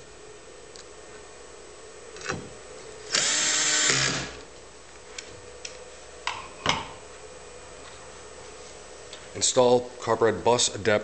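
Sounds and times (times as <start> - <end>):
electric screwdriver whining: 3.1 - 4.4.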